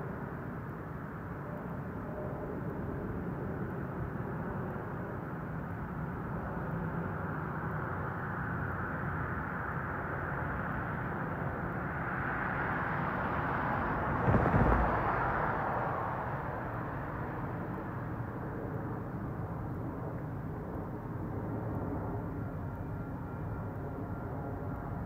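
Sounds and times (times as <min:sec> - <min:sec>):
steady outdoor rumble: 0:00.0 - 0:25.0
vehicle passing close by: 0:12.8 - 0:16.8
low thump: 0:14.2 - 0:15.3.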